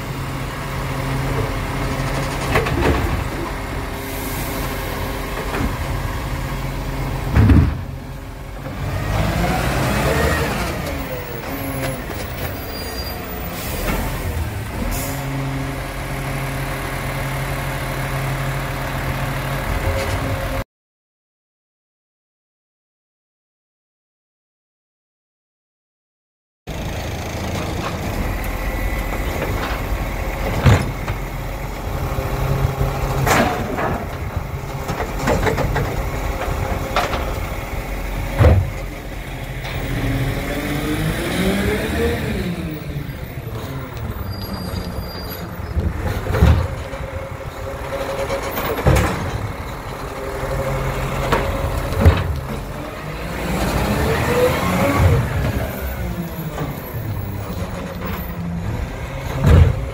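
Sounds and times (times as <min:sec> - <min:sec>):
garbage truck diesel engine revving: 0:00.0 - 0:20.6, 0:26.7 - 0:59.9
bins banging: 0:07.2 - 0:08.0, 0:29.1 - 0:31.4, 0:33.1 - 0:37.5, 0:38.2 - 0:38.9, 0:45.5 - 0:49.8.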